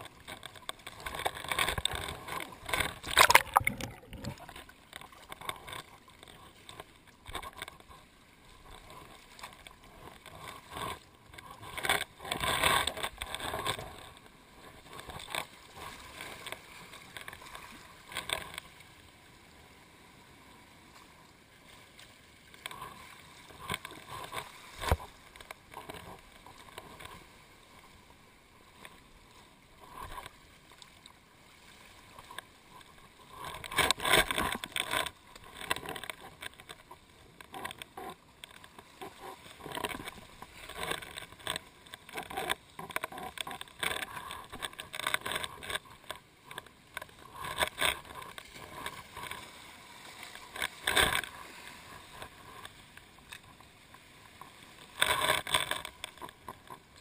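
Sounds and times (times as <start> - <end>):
water washing over rocks: 0.0 - 8.0, 22.5 - 27.2, 29.8 - 57.0.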